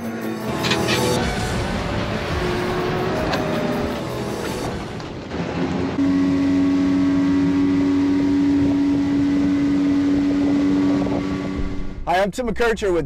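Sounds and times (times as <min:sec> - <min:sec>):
outboard motor running: 0:05.3 - 0:12.0.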